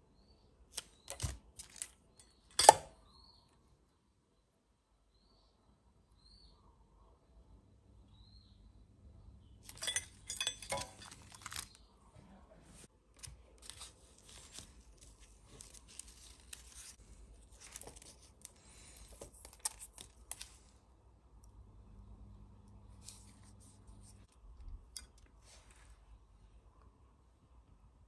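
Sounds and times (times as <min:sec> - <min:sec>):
packaging tearing and rustling: 0:00.8 - 0:02.0, 0:10.7 - 0:11.8, 0:13.2 - 0:20.7.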